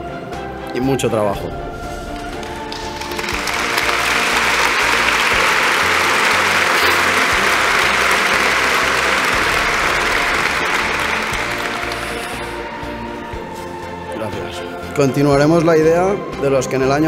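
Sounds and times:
soft background music: 0.0 - 17.0
audience applauding: 2.1 - 13.3.

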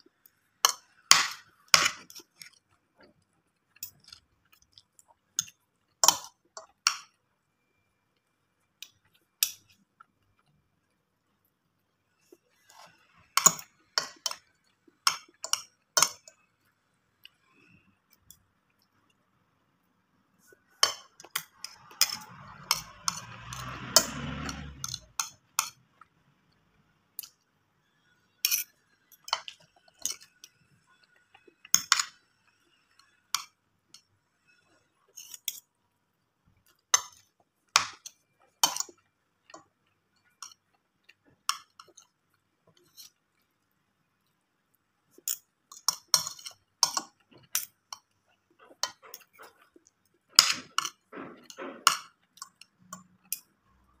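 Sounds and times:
cutlery clinking on a plate: 20.8 - 25.8, 28.4 - 30.3, 45.2 - 53.5
rough scraping noise: 21.5 - 25.1.

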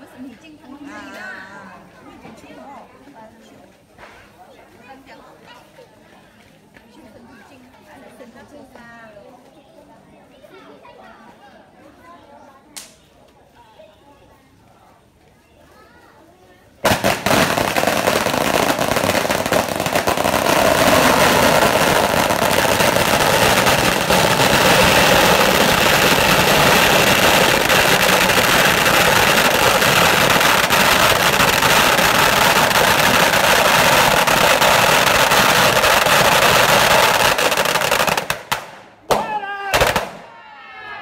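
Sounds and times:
firecrackers crackling: 16.7 - 40.4.

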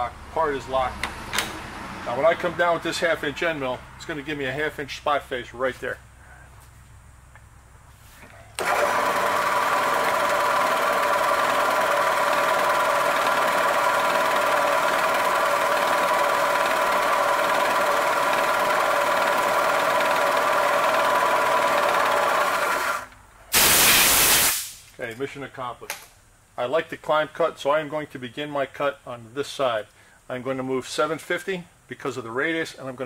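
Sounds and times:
air hiss blowing chips: 23.5 - 25.0.

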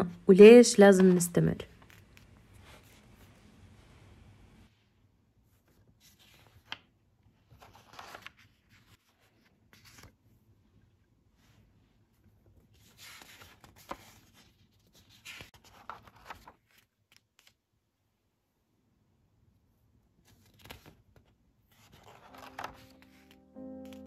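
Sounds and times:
paper pages rustling: 1.0 - 3.4, 5.5 - 10.4, 12.1 - 17.6, 20.2 - 24.0.

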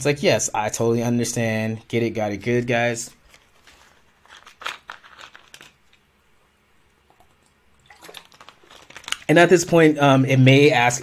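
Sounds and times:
plastic water bottle crinkling: 3.1 - 6.1, 7.1 - 9.7.

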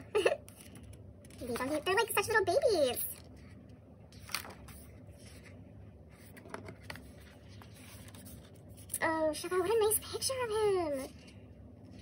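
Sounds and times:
book pages turning: 0.4 - 9.0.

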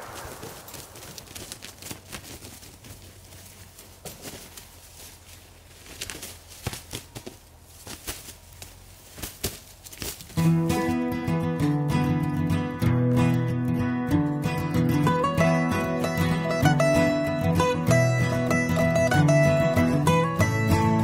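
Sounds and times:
turkey wings beating on dry leaves: 0.0 - 10.4
guitar music: 10.4 - 21.0.

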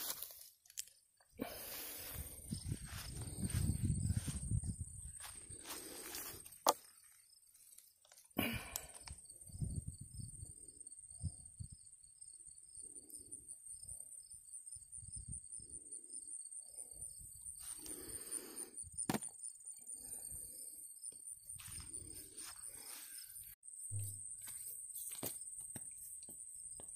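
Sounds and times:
high insect chirp: 0.8 - 26.9.

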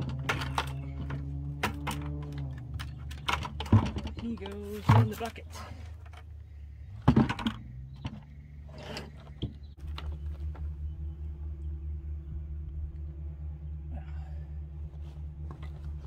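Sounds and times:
low pulsing hum: 0.0 - 16.0.

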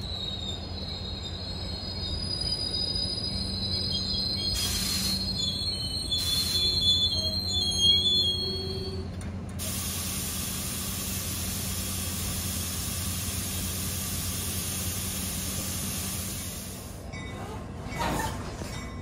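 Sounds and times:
train wheel squeal: 0.0 - 9.3, 13.6 - 19.0
low train hum: 0.0 - 19.0
air brakes hissing: 3.5 - 8.9, 9.6 - 17.0.

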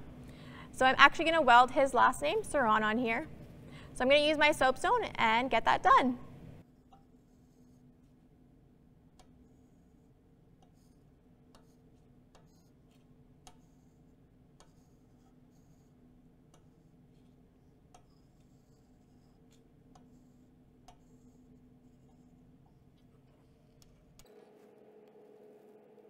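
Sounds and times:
marker scratching on steel plate: 6.7 - 8.2, 9.2 - 24.2.

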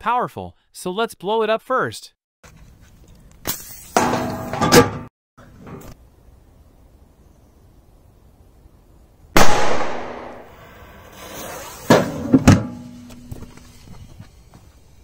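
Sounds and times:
firecracker bang: 9.4 - 12.3.

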